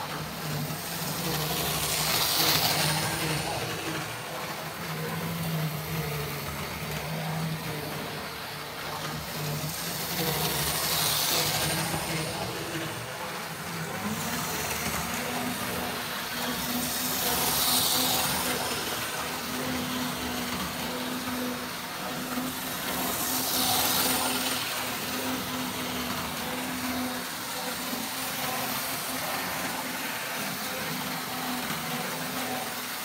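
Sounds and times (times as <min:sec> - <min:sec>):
model train motor hum: 0:00.0 - 0:33.0
model train wheels on track: 0:00.0 - 0:33.0.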